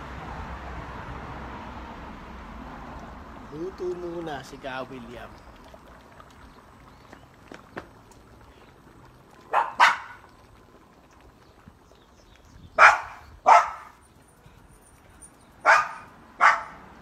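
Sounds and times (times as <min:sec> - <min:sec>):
dog barking: 0:09.5 - 0:10.2, 0:12.8 - 0:14.0, 0:15.6 - 0:16.8.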